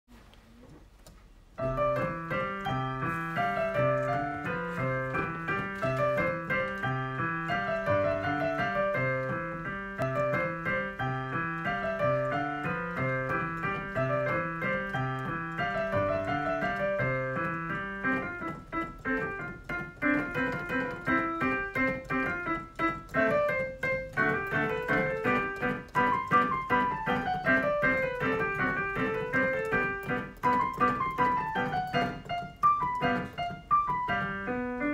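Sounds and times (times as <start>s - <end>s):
piano music: 1.6s - 34.9s.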